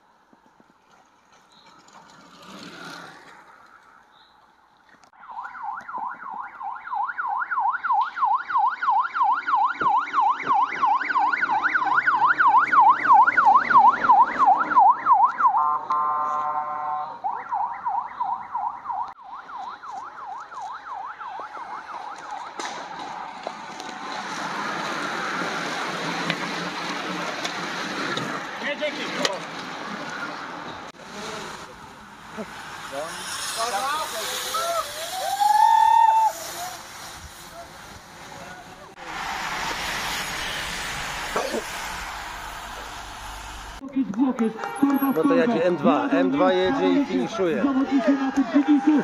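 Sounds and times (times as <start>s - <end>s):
bicycles whirring past: 1.3s - 4.1s, 23.0s - 43.8s
siren yelping: 5.2s - 15.8s, 16.5s - 23.3s.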